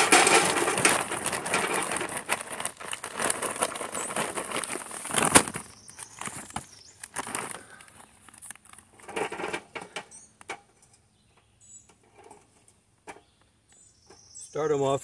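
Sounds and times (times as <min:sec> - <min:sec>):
charcoal briquettes clattering on metal: 0:00.0 - 0:07.9, 0:08.6 - 0:10.8
paper bag rustling: 0:00.0 - 0:09.5.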